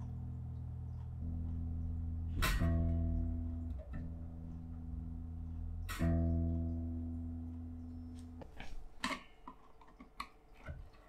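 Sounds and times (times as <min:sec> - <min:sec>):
electric bass plucked notes: 0:00.0 - 0:08.8.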